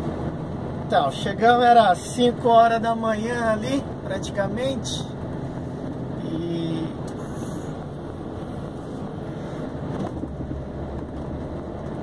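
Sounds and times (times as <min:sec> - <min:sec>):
diesel truck engine running: 0:00.0 - 0:12.0
road and tyre noise: 0:00.0 - 0:12.0.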